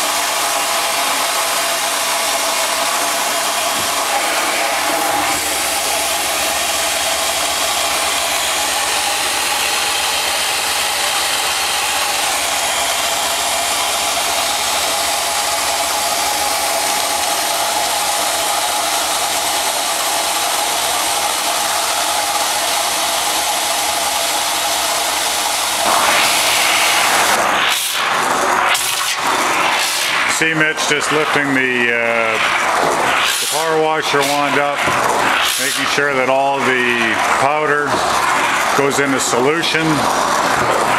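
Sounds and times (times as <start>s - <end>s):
pressure washer jetting into water: 0.0s - 40.9s.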